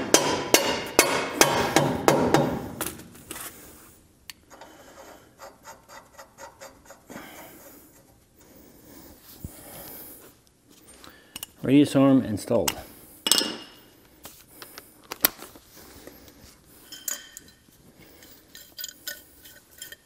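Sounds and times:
metal parts clanking with tools: 16.8 - 20.0.

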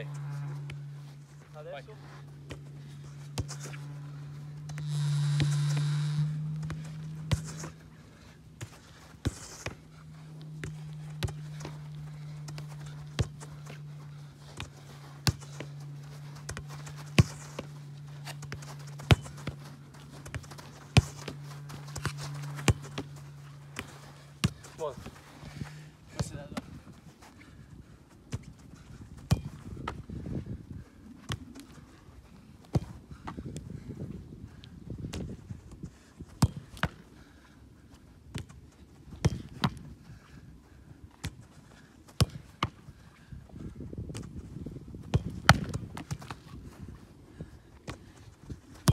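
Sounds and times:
footsteps shuffling on turf: 0.0 - 30.7
steady low hum: 0.0 - 48.9
ball being kicked: 2.4 - 7.9, 8.5 - 25.2, 29.2 - 30.0, 38.3 - 39.8, 42.2 - 42.8, 45.0 - 46.6
football kicked with sharp thud: 29.2 - 30.1, 35.0 - 35.4, 38.3 - 39.8, 42.2 - 42.8, 45.0 - 46.4
ball landing on turf and gloves: 45.0 - 46.4.

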